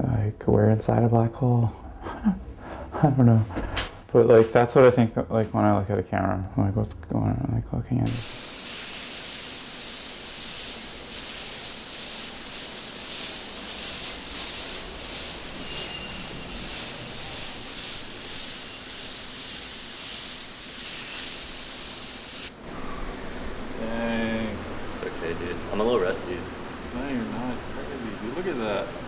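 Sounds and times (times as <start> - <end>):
airbrush hissing: 8.1 - 22.6.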